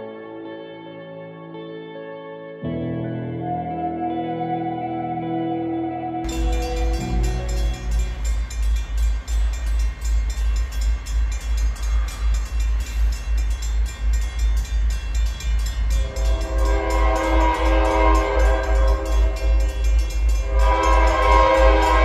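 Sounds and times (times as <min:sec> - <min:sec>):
music with a deep beat: 0:06.3 - 0:22.0
locomotive air horn: 0:16.0 - 0:19.7, 0:20.4 - 0:22.0.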